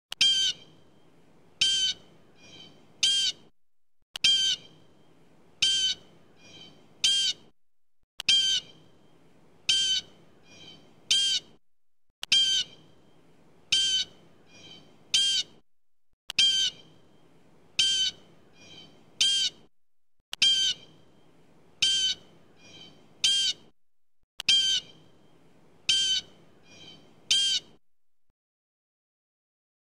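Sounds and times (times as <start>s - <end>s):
blue jay harsh calls: 0.2s - 0.7s, 1.6s - 3.4s, 4.2s - 4.7s, 5.6s - 7.4s, 8.3s - 8.8s, 9.7s - 11.5s, 12.3s - 12.8s, 13.7s - 15.6s, 16.4s - 16.9s, 17.8s - 19.6s, 20.4s - 20.9s, 21.8s - 23.6s, 24.5s - 25.0s, 25.9s - 27.8s.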